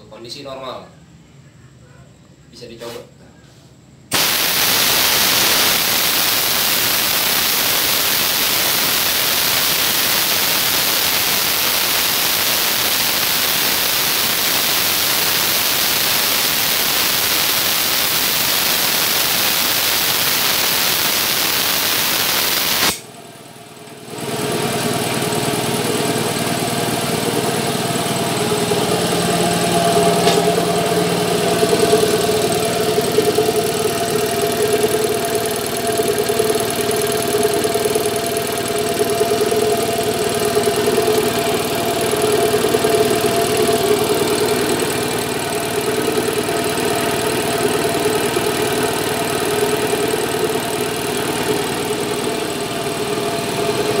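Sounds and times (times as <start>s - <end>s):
compressed air hissing: 4.1s - 23.1s
compressor motor humming: 4.1s - 54.0s.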